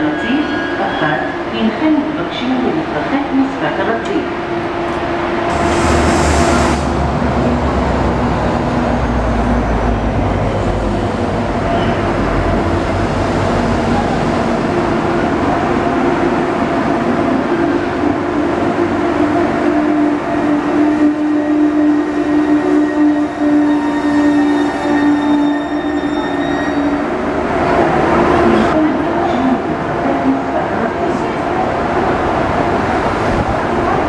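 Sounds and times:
train wheels rumbling on rail: 0:02.0 - 0:34.0.

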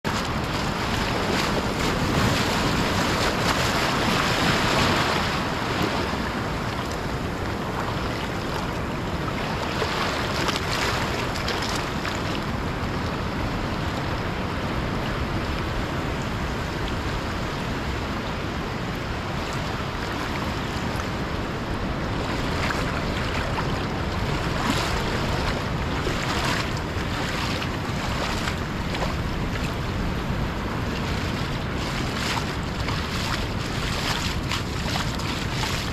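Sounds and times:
surf washing over sand: 0:00.0 - 0:35.9
wind rumbling on microphone: 0:00.0 - 0:35.9.

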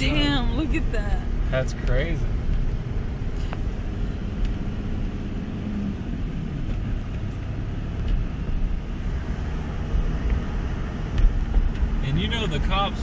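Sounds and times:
vehicle engine and road rumble: 0:00.0 - 0:13.0.

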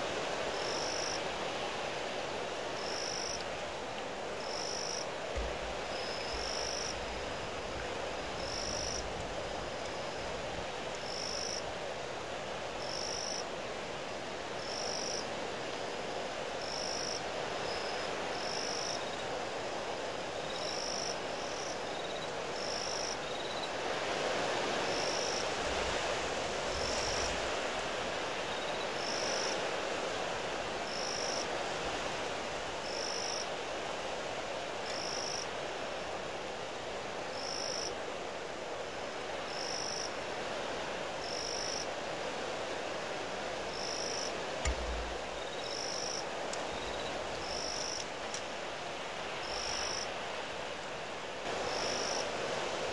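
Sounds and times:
strong wind blowing: 0:44.6 - 0:45.6
wind buffeting microphone: 0:44.6 - 0:45.6.

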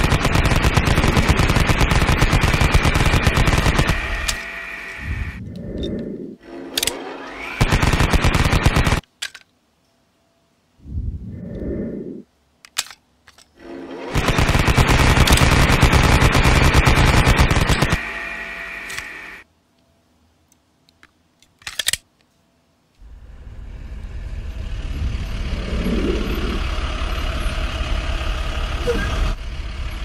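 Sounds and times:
machine-gun fire: 0:00.0 - 0:04.4, 0:07.6 - 0:09.0, 0:14.1 - 0:18.2
short low sounds: 0:10.8 - 0:12.3.

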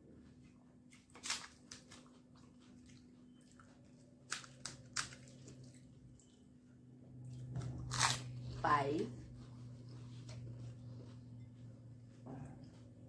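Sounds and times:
faint steady hum: 0:00.0 - 0:13.0
crisp shells crunching: 0:07.8 - 0:08.3.

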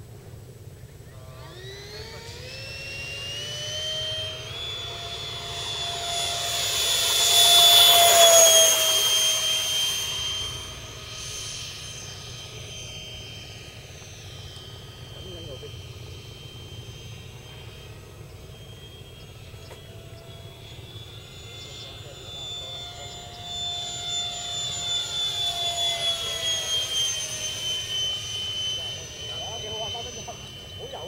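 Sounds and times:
model jet fan whining: 0:00.0 - 0:31.0.

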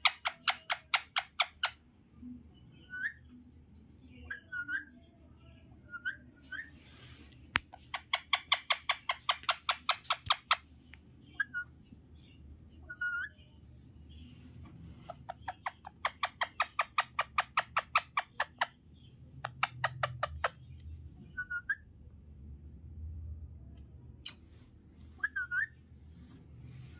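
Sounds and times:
parakeet soft chirps: 0:00.0 - 0:22.0, 0:24.2 - 0:26.0
parakeet rapid sharp clicking: 0:07.6 - 0:10.6.

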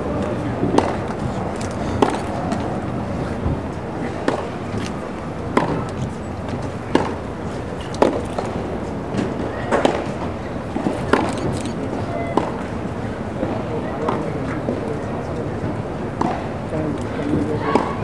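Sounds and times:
outdoor ambience murmur: 0:00.0 - 0:18.0
tennis racket hitting ball: 0:00.3 - 0:02.8, 0:04.0 - 0:07.2, 0:07.9 - 0:11.3, 0:16.2 - 0:16.5.

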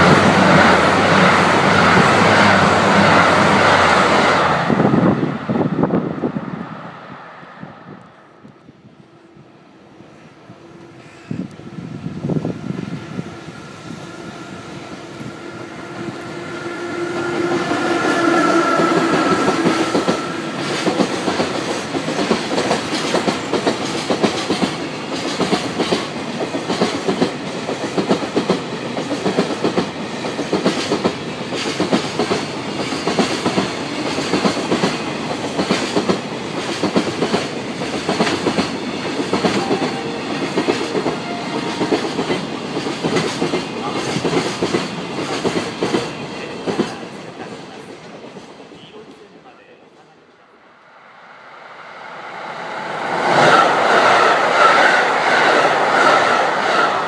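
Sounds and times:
electric locomotive passing: 0:00.0 - 0:57.0
train wheels clacking over rail joints: 0:17.5 - 0:47.0.

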